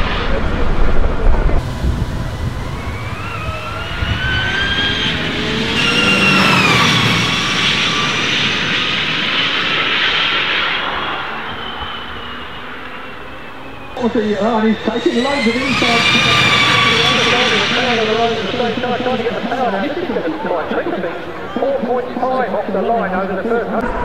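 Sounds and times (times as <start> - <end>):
electric motor whine of passing van: 1.6 - 10.1, 11.9 - 20.5.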